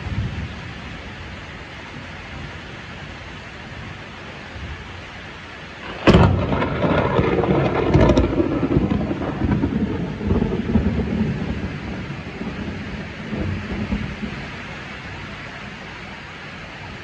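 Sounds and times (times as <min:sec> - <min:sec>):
thunder crack: 0:05.8 - 0:14.6
thunder rolling rumble: 0:05.8 - 0:15.3.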